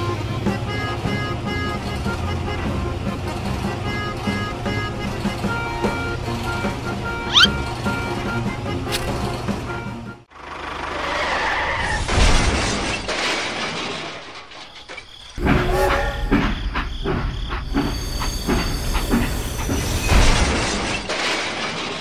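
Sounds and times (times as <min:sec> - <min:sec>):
toy train rumbling: 0:00.2 - 0:09.8
toy train crashing: 0:11.8 - 0:16.4, 0:19.7 - 0:22.0.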